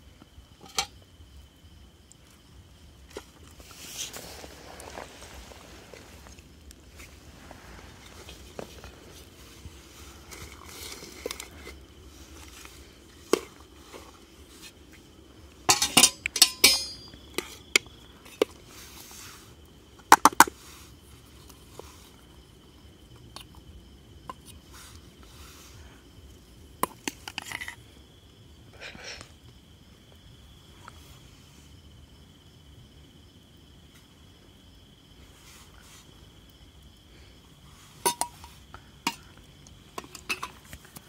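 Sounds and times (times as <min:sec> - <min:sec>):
insect trill: 0:00.0 - 0:41.0
utensils clinking on steel plates: 0:15.7 - 0:17.2.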